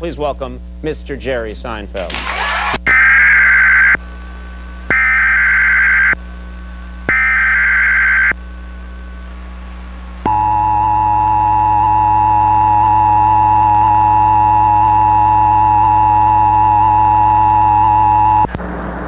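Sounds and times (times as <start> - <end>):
two-tone attention signal: 10.3 - 18.5.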